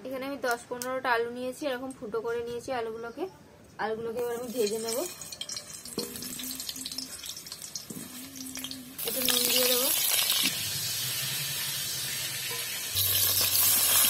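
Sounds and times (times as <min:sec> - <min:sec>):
potatoes sizzling in hot oil: 0:04.3 - 0:14.0.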